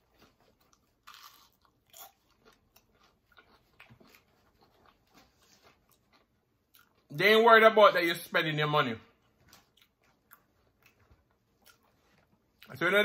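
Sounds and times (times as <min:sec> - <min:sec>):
crunching onion ring: 0:00.0 - 0:07.1.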